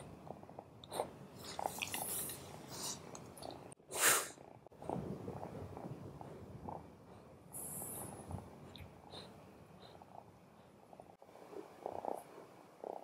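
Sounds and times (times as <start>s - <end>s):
soft breathing: 4.3s - 13.0s.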